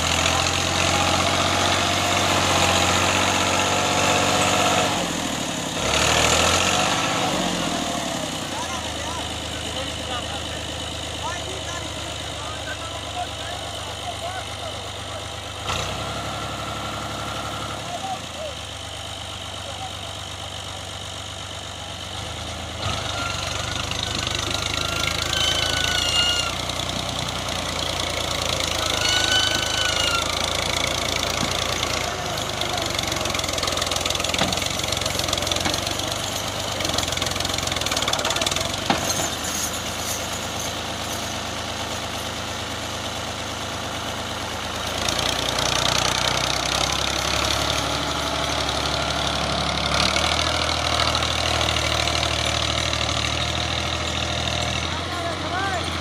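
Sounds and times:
tractor diesel engine working hard: 0.0s - 56.0s.

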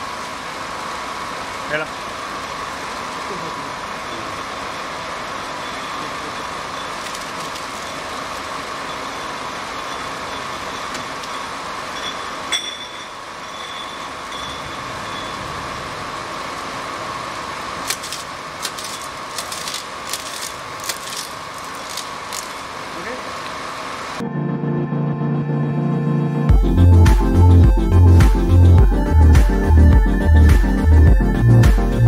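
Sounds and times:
labeling machine humming: 0.0s - 24.2s.

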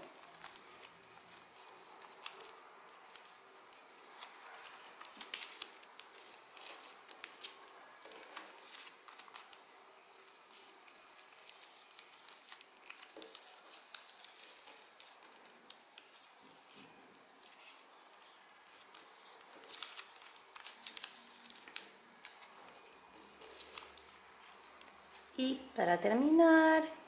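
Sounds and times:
paper crinkling: 0.0s - 25.3s
small clicks and rustles: 0.1s - 25.2s.

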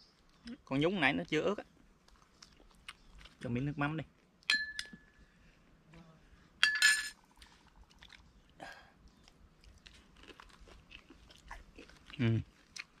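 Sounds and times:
soft chewing: 1.6s - 6.1s, 7.3s - 13.0s
metal spoon clinking on bowl: 4.5s - 5.0s, 6.6s - 7.2s.

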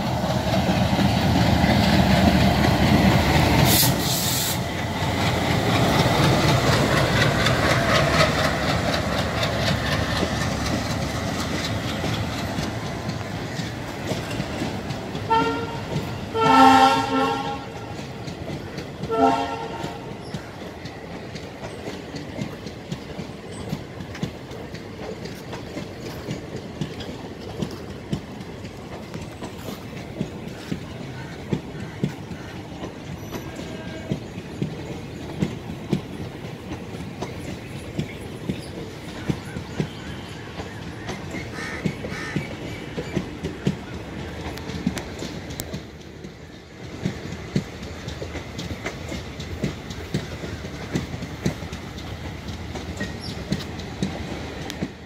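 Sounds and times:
diesel locomotive engine running: 0.0s - 55.0s
train wheels clicking over rail joints: 0.0s - 55.0s
train horn blasts: 15.2s - 18.0s, 19.0s - 20.1s, 33.4s - 34.2s.

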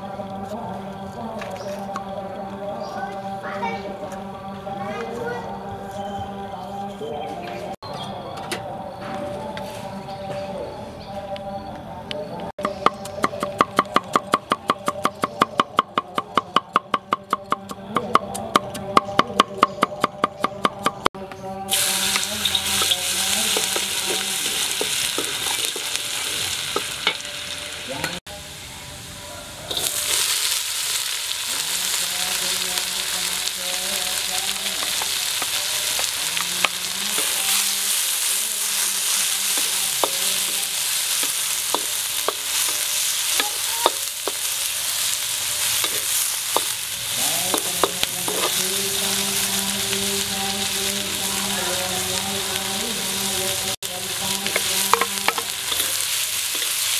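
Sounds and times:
wooden spatula scraping wok: 21.7s - 27.3s, 34.7s - 49.9s, 51.0s - 56.9s
oil sizzling in wok: 21.7s - 56.9s.

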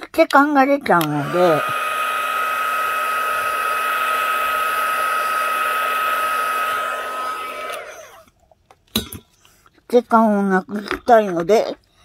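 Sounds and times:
electric stirrer whirring: 1.0s - 8.3s.

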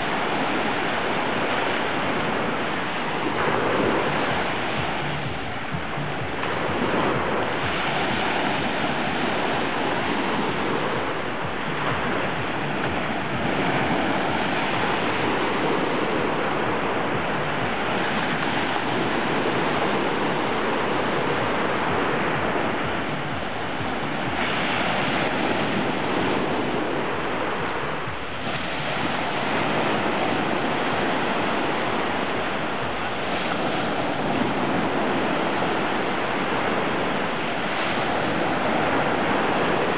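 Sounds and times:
waves breaking on sandy beach: 0.0s - 39.9s.

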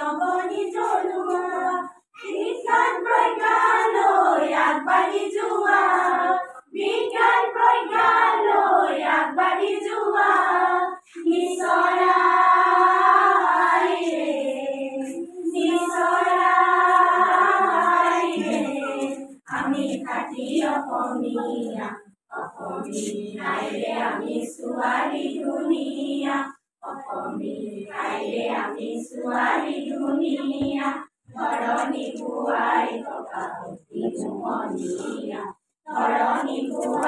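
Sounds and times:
women and girls singing: 0.0s - 37.0s.

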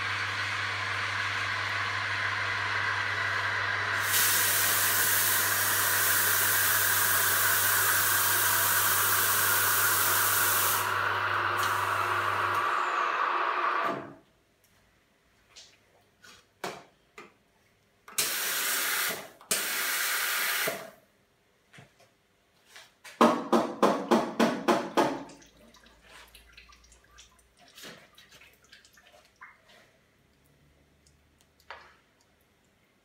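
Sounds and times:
steam wand hissing: 2.5s - 13.9s.

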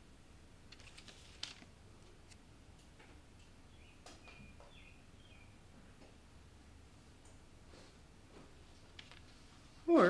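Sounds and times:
bird-like chirp: 3.7s - 5.6s.

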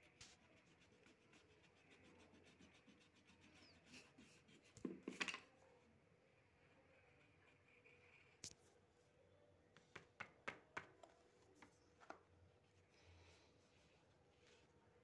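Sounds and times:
eraser rubbing on paper: 0.0s - 5.0s.

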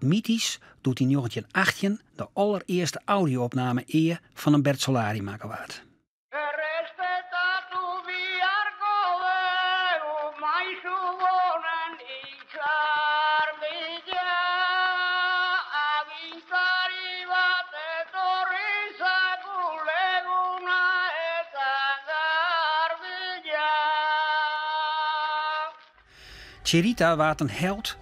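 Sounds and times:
man singing a cappella: 6.3s - 25.8s.

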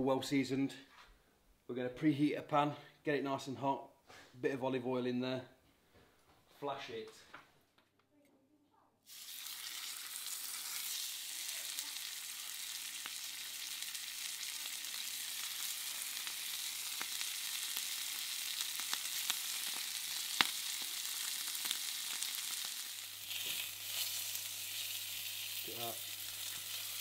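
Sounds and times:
meat sizzling in a frying pan: 9.1s - 27.0s.

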